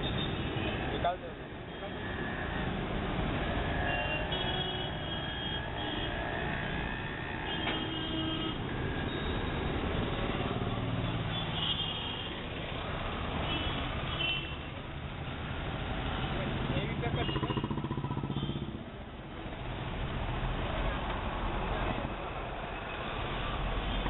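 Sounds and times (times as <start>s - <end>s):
vehicles passing: 0.0s - 24.0s.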